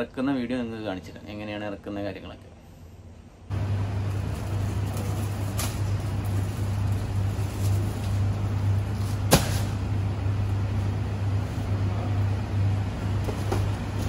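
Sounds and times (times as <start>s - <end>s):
low motor hum: 3.5s - 14.0s.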